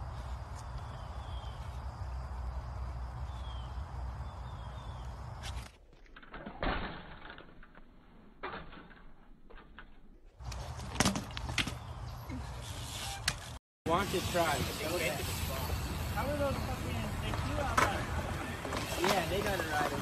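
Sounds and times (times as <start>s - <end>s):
bird chirps: 3.2s - 5.2s
bike knocks and clatters: 5.4s - 12.1s, 17.2s - 20.0s.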